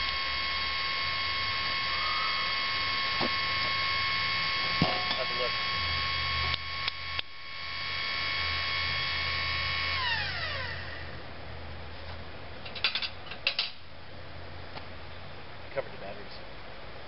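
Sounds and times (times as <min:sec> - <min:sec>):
electric motor whining: 0:00.0 - 0:11.2.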